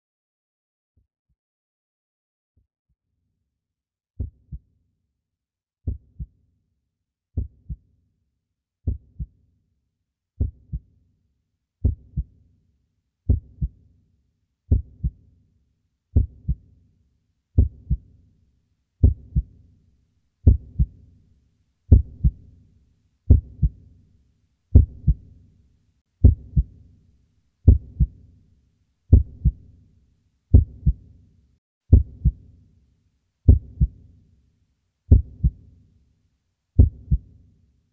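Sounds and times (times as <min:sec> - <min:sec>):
heartbeat thumps: 0:16.2 - 0:16.6, 0:19.0 - 0:19.5, 0:20.4 - 0:20.9, 0:21.9 - 0:22.4, 0:24.7 - 0:25.2, 0:26.2 - 0:26.7, 0:27.7 - 0:28.2, 0:29.1 - 0:29.6, 0:30.5 - 0:31.0, 0:31.9 - 0:32.4, 0:35.1 - 0:35.6, 0:36.8 - 0:37.2.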